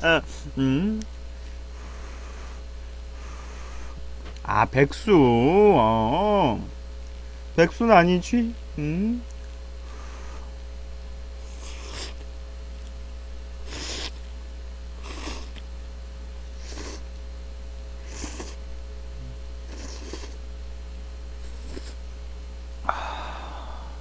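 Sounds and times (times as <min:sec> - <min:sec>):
electrical hum: 0:00.0 - 0:24.0
person slurping noodles: 0:11.5 - 0:12.2, 0:13.6 - 0:14.2, 0:15.0 - 0:15.6, 0:16.6 - 0:17.0, 0:18.0 - 0:18.6, 0:19.7 - 0:20.4, 0:21.4 - 0:22.0.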